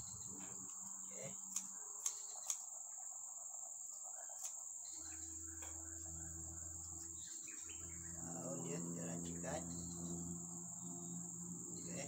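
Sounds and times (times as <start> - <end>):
crickets chirping: 0.0 - 12.0
scissors snipping leaves: 0.4 - 2.7, 4.2 - 4.6.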